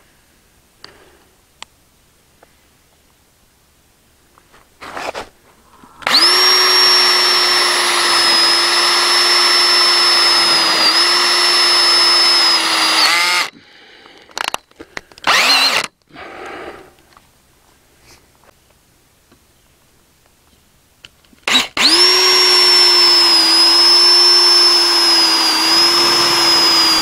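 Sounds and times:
cordless drill driving screw: 6.0s - 13.5s, 15.2s - 15.9s, 21.4s - 27.0s.

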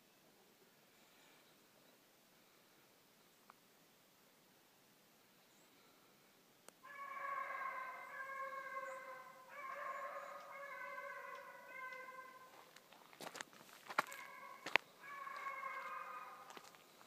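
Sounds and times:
hound baying: 6.8s - 12.7s, 14.0s - 16.7s.

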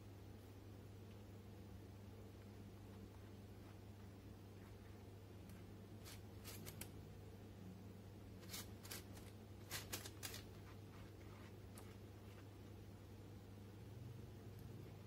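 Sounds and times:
low steady hum: 0.0s - 15.0s
pastry brush scratching: 3.2s - 7.0s, 8.4s - 12.6s.

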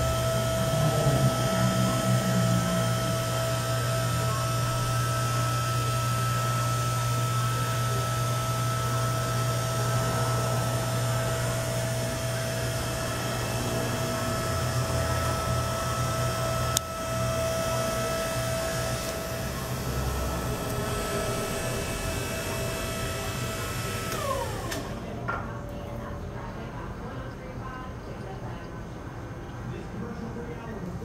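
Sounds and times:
hydraulic pump motor humming: 0.0s - 25.4s.

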